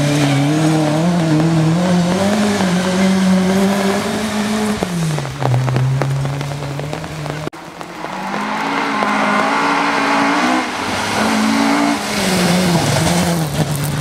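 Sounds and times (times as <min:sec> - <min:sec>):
rally car engine revving: 0:00.0 - 0:14.0.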